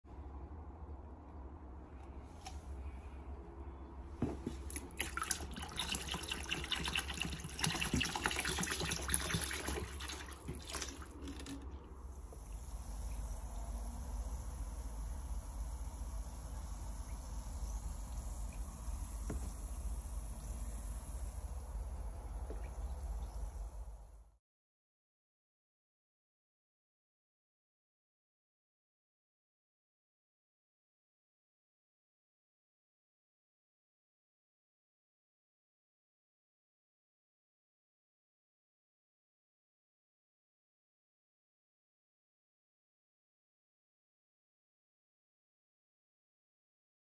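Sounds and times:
liquid pouring into water: 4.6s - 24.2s
steady high hiss: 12.0s - 24.1s.

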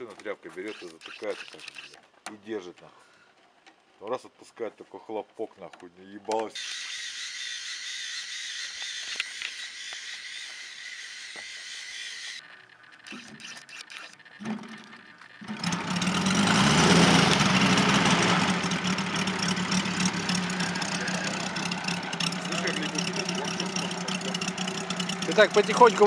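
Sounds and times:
model plane engine idling: 6.6s - 26.0s.

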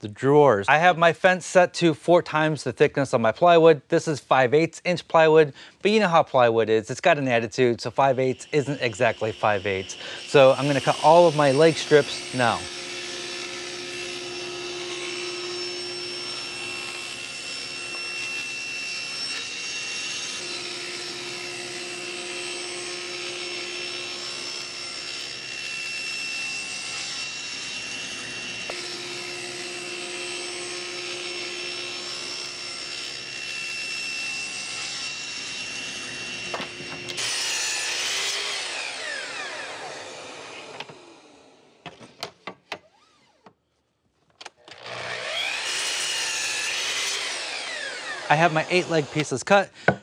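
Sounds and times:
miter saw cutting: 6.9s - 42.1s, 44.6s - 50.0s
table saw cutting plywood: 7.2s - 43.5s, 44.7s - 50.0s
saw blade spinning down whine: 7.3s - 41.8s, 44.8s - 49.3s.

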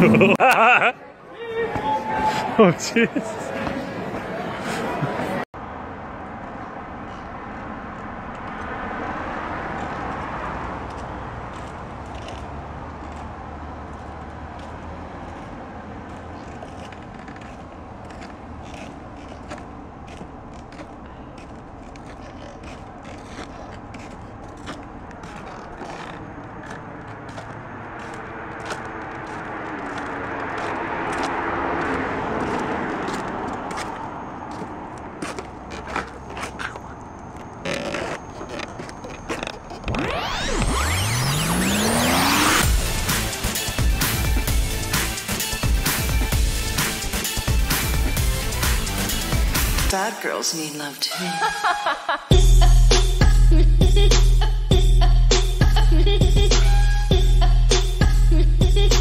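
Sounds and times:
traffic hum: 0.0s - 59.0s
car driving past: 24.6s - 39.2s, 39.8s - 43.5s
music: 42.6s - 49.9s, 52.3s - 59.0s.

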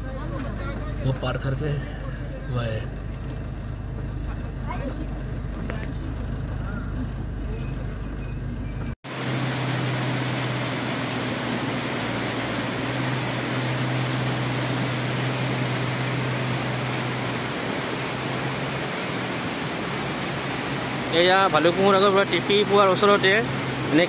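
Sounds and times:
river and waterfall rushing: 9.1s - 24.0s.

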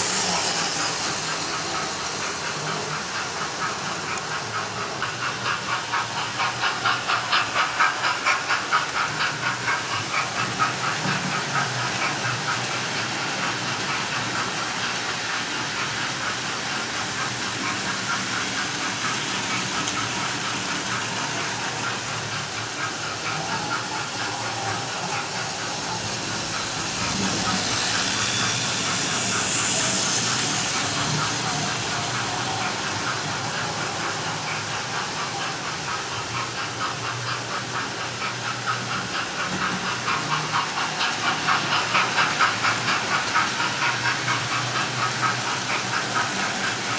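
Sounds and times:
model steam locomotive chuffing: 0.0s - 46.9s
model trains running on track: 0.0s - 46.9s.

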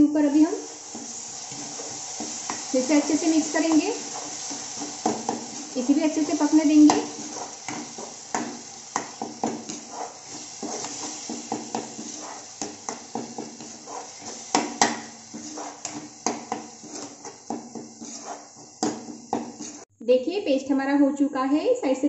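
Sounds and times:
paste sizzling in oil: 0.0s - 19.9s
spatula scraping a pan: 0.6s - 19.9s.

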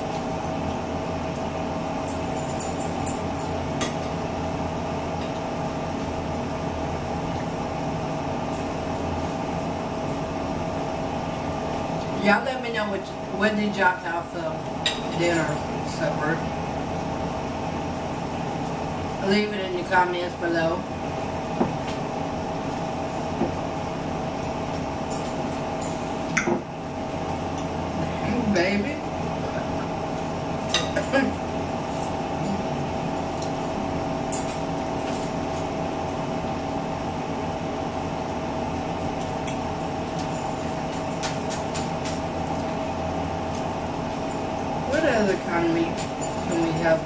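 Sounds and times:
appliance hum: 0.0s - 47.0s
forks clinking on plates: 30.6s - 31.4s.

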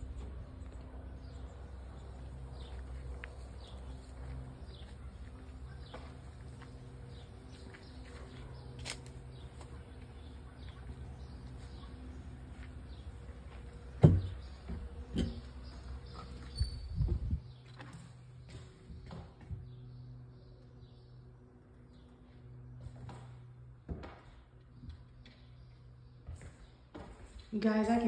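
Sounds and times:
small birds chirping: 0.0s - 23.1s
steady low hum: 0.0s - 27.5s.

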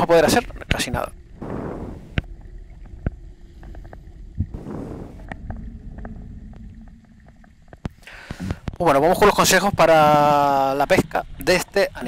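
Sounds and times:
low underwater rumble: 1.2s - 8.0s
rushes of water: 1.3s - 8.0s.

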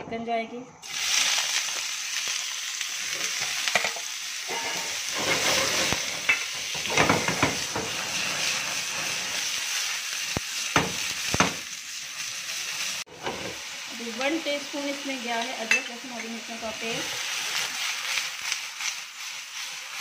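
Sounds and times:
chicken sizzling in oil: 0.8s - 20.0s
utensil scraping pan: 4.5s - 9.2s.

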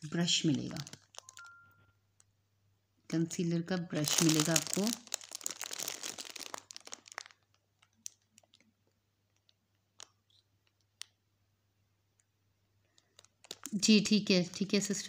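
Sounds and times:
packaging crinkling: 0.1s - 1.6s, 3.9s - 11.2s, 12.9s - 15.0s.

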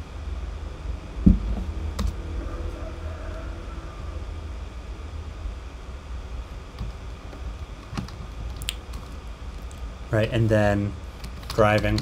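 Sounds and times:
steady low hum: 0.0s - 12.0s
low thump: 1.2s - 1.7s.

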